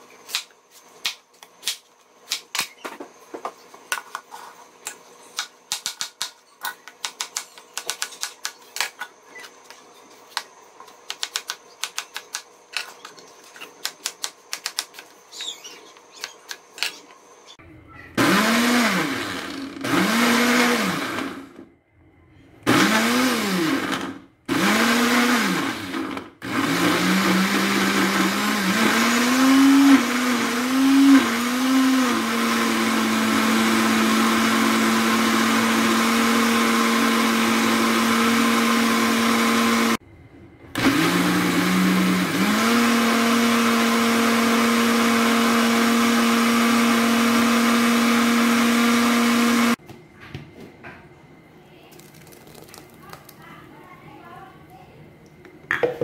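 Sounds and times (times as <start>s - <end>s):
electric blender motor running: 18.2s - 21.6s, 22.7s - 40.0s, 40.8s - 49.8s.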